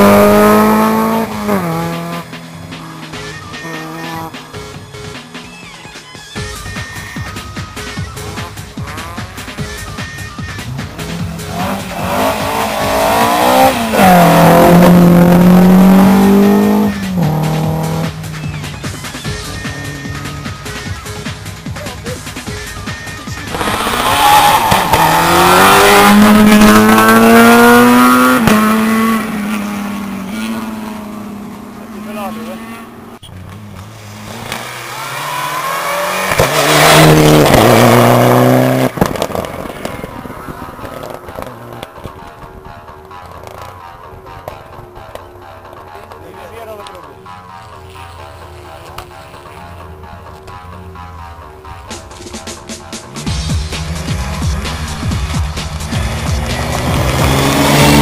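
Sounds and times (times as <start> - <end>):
rally car engine accelerating: 0.0 - 4.7, 10.6 - 20.6, 23.2 - 42.1, 48.6 - 58.0.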